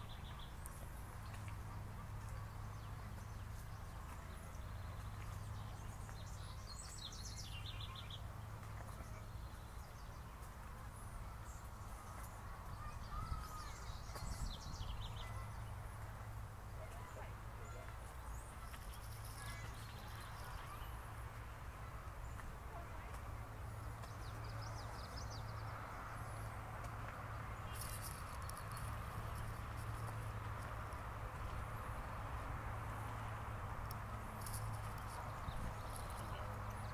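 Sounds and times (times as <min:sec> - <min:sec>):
footsteps on sandy dirt path: 0:22.2 - 0:36.9.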